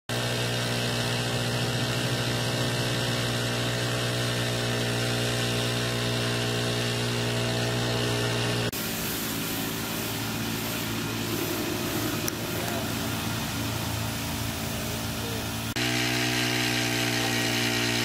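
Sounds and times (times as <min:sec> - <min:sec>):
small petrol engine running: 0:00.1 - 0:18.0
spray gun jet: 0:00.1 - 0:18.0.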